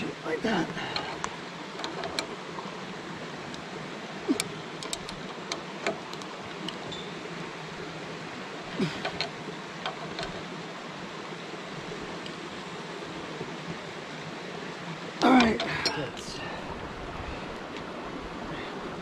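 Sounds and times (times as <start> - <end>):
steady rushing noise: 9.5 - 19.0.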